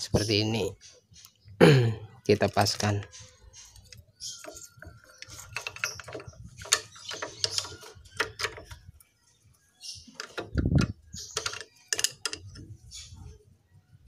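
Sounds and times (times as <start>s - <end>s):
small metallic clicks and taps: 10.1s - 12.7s.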